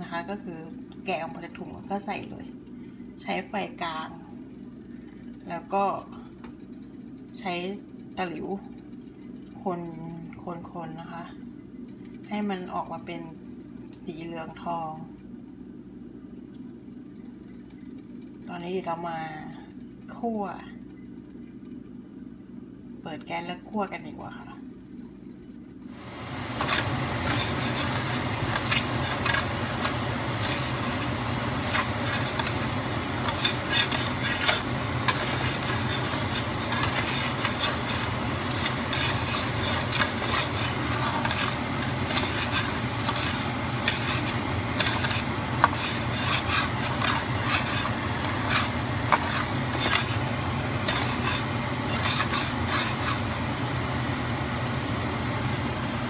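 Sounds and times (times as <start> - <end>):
steady low hum: 0.0 - 56.0
rice scraping in a wok: 26.0 - 53.9.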